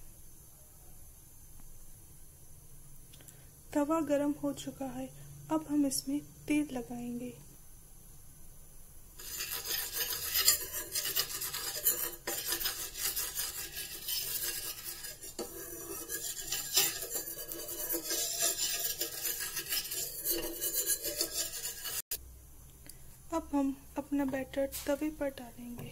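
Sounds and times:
spoon scraping iron griddle: 0:09.2 - 0:22.2.

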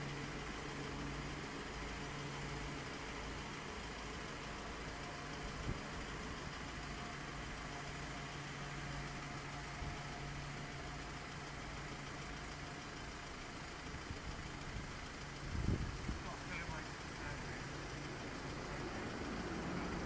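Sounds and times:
tram humming past: 0:17.0 - 0:20.0.

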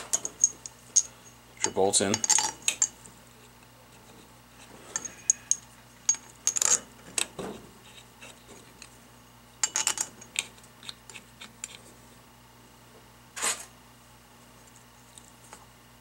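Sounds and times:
metal bolts clinking: 0:00.0 - 0:03.0.

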